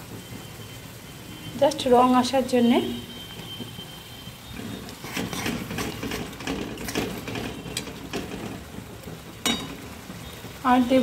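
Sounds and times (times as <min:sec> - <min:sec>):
oil bubbling: 0:00.0 - 0:11.0
spatula scraping metal pan: 0:04.4 - 0:08.7.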